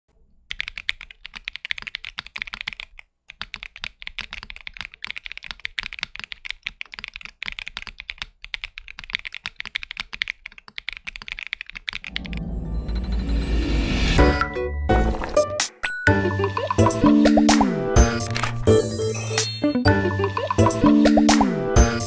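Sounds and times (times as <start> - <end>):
mechanical keyboard typing: 0.5 - 12.6.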